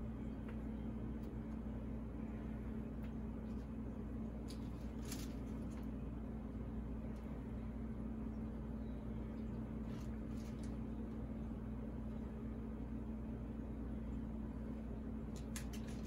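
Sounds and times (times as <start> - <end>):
steady low hum: 0.0 - 16.0
soft rustles of sandwich toppings: 2.7 - 7.5, 9.0 - 11.7.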